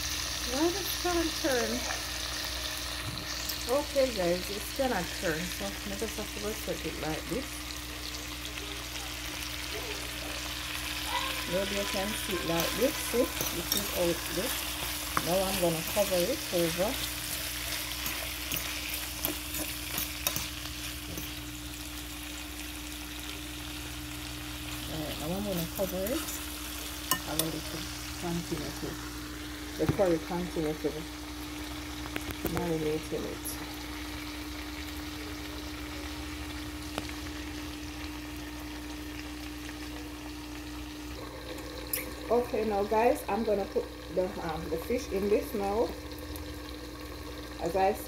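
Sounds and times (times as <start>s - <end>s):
low steady hum: 0.0s - 48.0s
meat sizzling in a frying pan: 0.0s - 48.0s
spoon scraping a pan: 11.4s - 21.5s.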